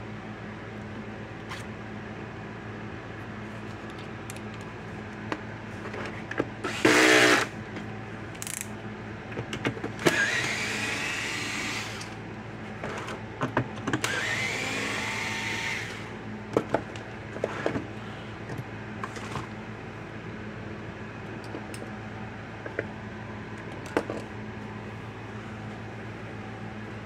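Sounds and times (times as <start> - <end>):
cordless drill motor whine: 6.6 - 7.5, 10.0 - 12.2, 14.0 - 16.2.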